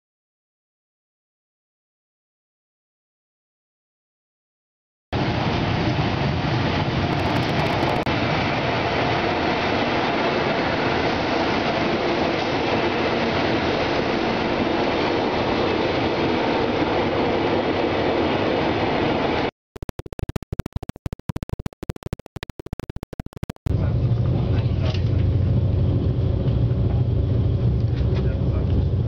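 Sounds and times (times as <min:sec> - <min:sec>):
stuttering sound fragments: 0:07.1 - 0:08.1, 0:19.6 - 0:23.7.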